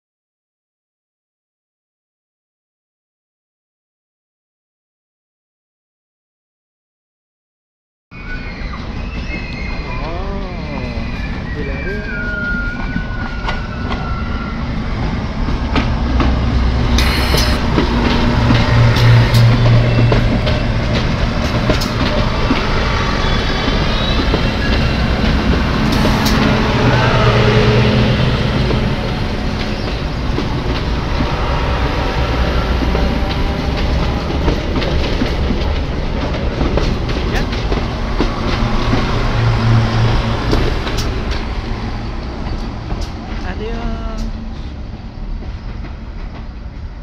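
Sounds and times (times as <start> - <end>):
wheels squealing: 8.2 - 15.2, 16.9 - 42.8
diesel train engine rumble: 8.5 - 47.0
wheels clicking over rail joints: 32.7 - 43.5.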